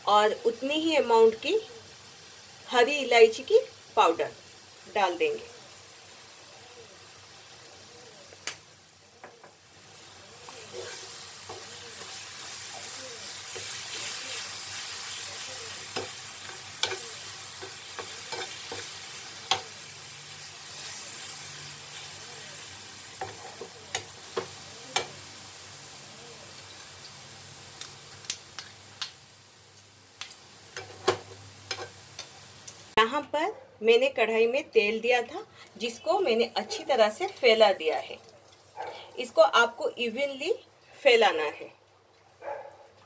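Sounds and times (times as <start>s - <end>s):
steady sizzle: 0.0s - 33.1s, 34.3s - 40.6s
spoon stirring and scraping in pan: 9.2s - 20.0s, 23.0s - 25.2s, 30.3s - 32.9s
spoon clicking against pan: 16.8s - 19.7s.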